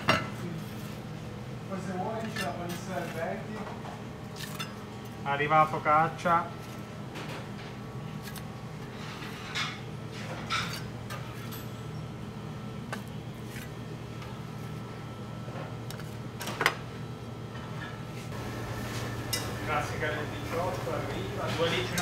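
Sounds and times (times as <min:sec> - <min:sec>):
low kitchen hum: 0:00.0 - 0:22.0
plates and utensils clinking: 0:09.0 - 0:11.7, 0:21.4 - 0:22.0.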